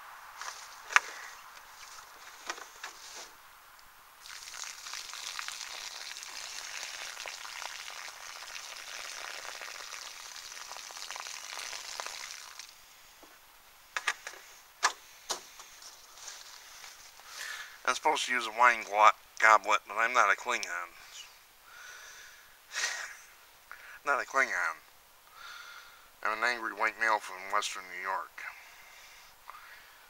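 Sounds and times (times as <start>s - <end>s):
leaves crackling: 0.0s - 13.2s, 13.8s - 19.0s
water pouring onto dry leaves: 4.2s - 12.8s, 16.0s - 18.0s.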